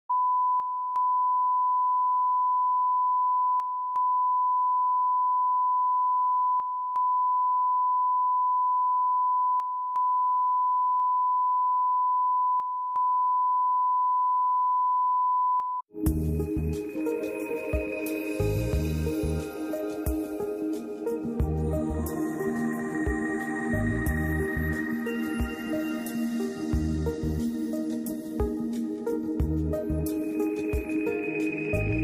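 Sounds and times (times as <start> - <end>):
music: 15.9 - 32.0.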